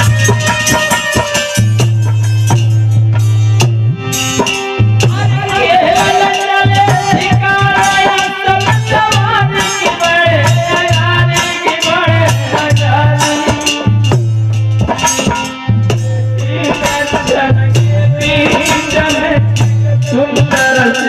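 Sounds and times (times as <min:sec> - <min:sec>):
drum: 0:00.0 - 0:21.0
harmonium: 0:00.0 - 0:21.0
rattling percussion: 0:00.0 - 0:21.0
man singing into microphone: 0:05.0 - 0:14.2, 0:16.0 - 0:21.0.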